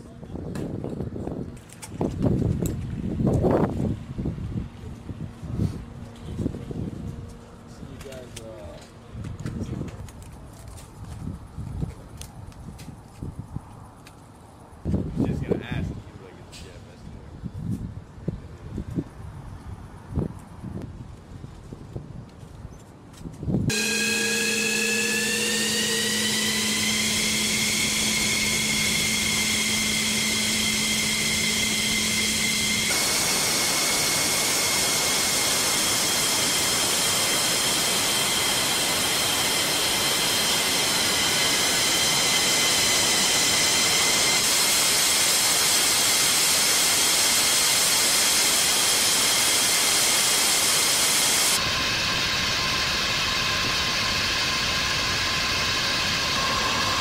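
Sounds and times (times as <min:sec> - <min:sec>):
jet engine whine: 0:23.6 - 0:57.0
rushing exhaust noise: 0:23.7 - 0:57.0.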